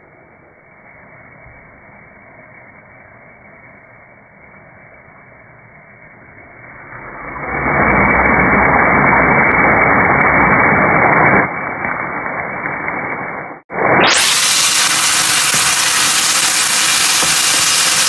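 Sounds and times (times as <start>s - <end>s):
meat and onions sizzling in a pan: 13.8s - 18.0s.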